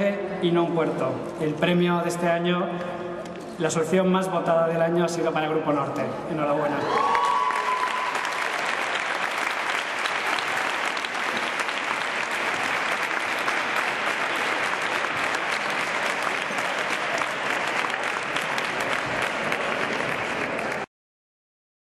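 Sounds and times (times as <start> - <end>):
audience applauding: 6.8 - 20.9.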